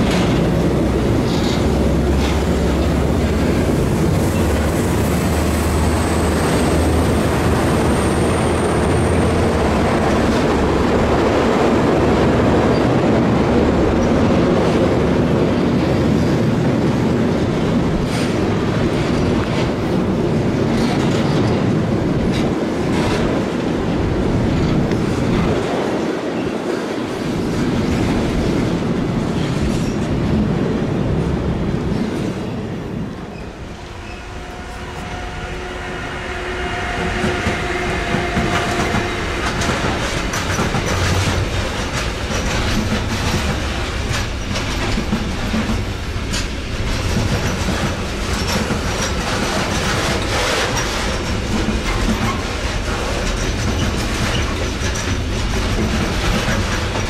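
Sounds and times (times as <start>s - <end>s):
freight train wagons rumbling: 0.0s - 57.0s
high wheel squeal: 5.3s - 9.6s
wheels clicking over rail joints: 38.1s - 57.0s.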